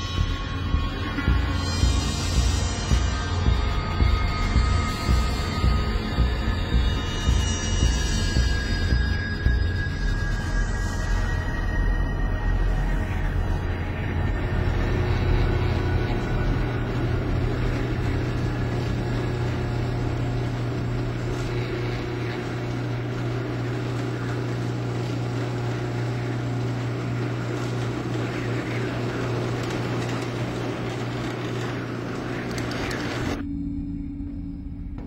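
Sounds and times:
higher-pitched steady hum: 0.0s - 35.0s
low machine-like hum: 0.0s - 35.0s
hissing rumble: 12.1s - 33.4s.

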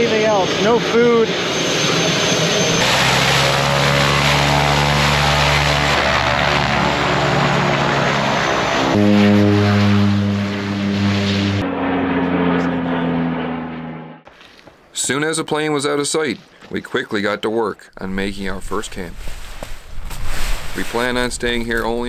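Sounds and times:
turboprop engines droning: 0.0s - 14.3s.

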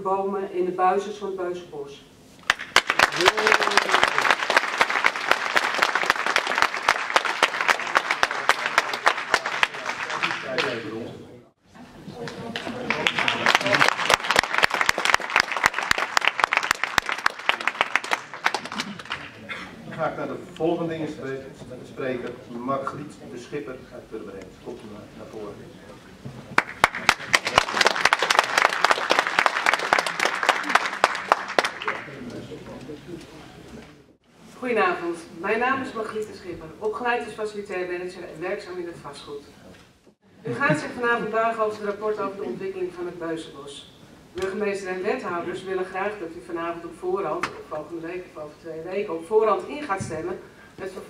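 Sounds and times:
audience applauding: 2.4s - 11.0s, 12.2s - 19.4s, 26.5s - 32.3s.

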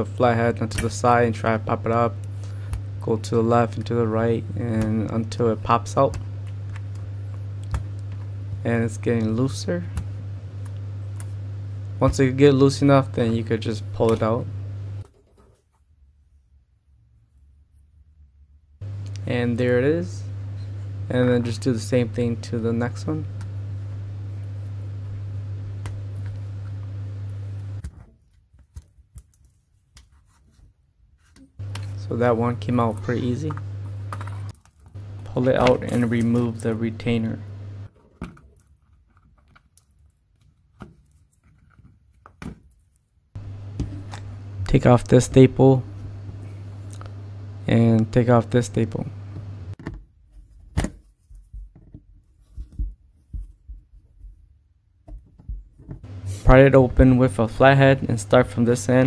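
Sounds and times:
steady low hum: 0.0s - 15.1s, 18.4s - 27.9s, 31.6s - 38.0s, 43.4s - 49.8s, 52.2s - 59.0s.

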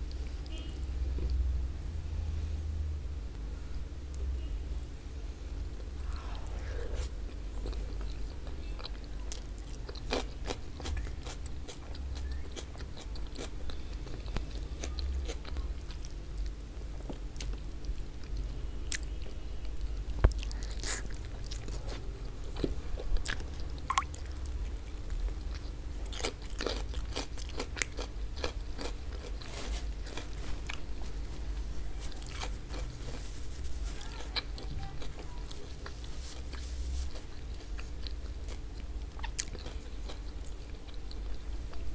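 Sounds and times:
wet chewing and biting: 7.0s - 16.2s, 22.6s - 31.0s, 34.4s - 41.4s.

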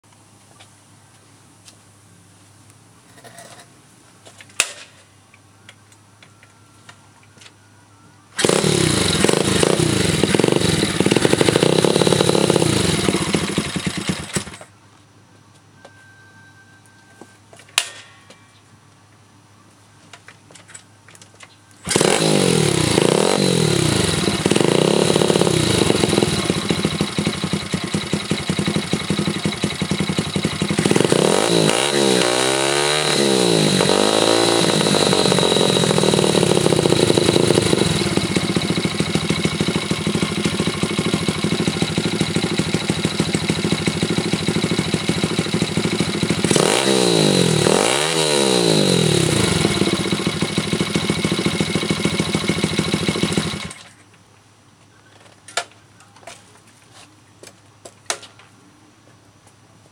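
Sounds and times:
motorcycle engine revving and idling: 8.4s - 14.7s, 21.8s - 53.9s.

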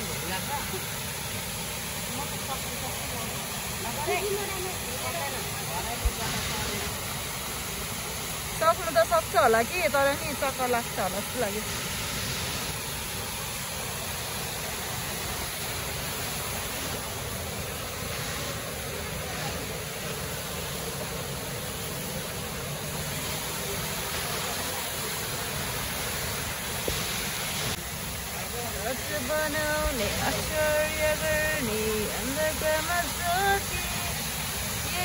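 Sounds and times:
waterfall rushing: 0.0s - 35.0s.

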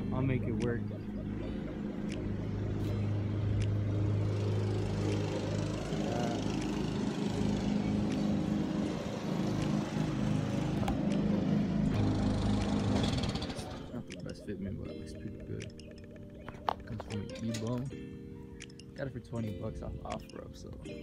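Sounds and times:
low engine hum: 0.0s - 14.8s.

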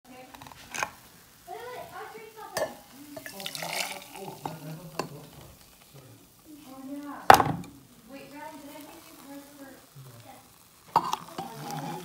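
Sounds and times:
tea pouring: 0.3s - 12.0s
pot clinking on thermos rim: 2.6s - 5.2s.

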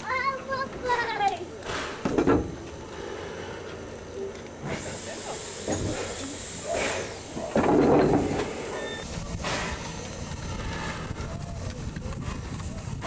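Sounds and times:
steam hissing: 1.6s - 13.0s.

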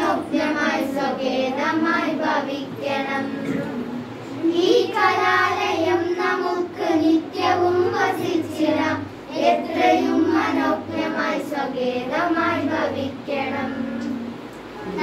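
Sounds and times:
girls singing a prayer song: 0.0s - 15.0s.

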